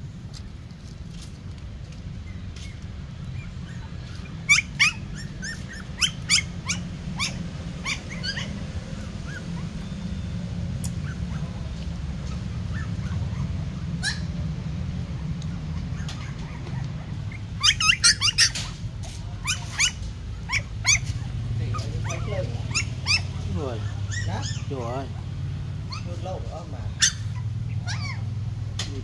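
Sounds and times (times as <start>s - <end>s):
puppies yelping and squeaking: 2.1s - 29.0s.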